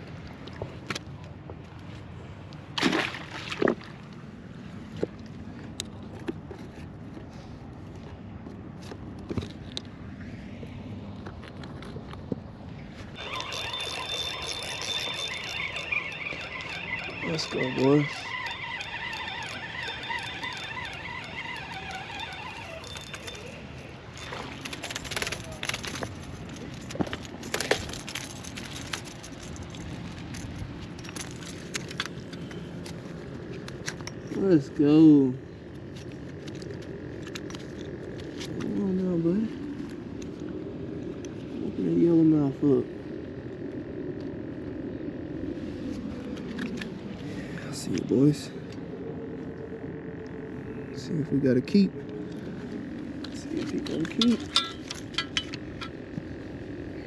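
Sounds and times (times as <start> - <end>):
steady low rumble: 0.0 - 57.0
fish stringer splashing into water: 2.8 - 3.9
steady outdoor hiss: 7.2 - 57.0
handling clicks and rattles: 13.2 - 34.5, 35.7 - 38.8, 51.5 - 56.8.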